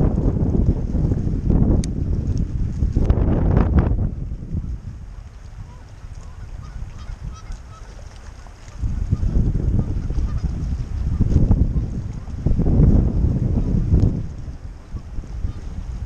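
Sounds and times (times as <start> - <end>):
wind buffeting microphone: 0.0 - 16.0
faint goose honks: 5.7 - 8.0, 8.6 - 10.6.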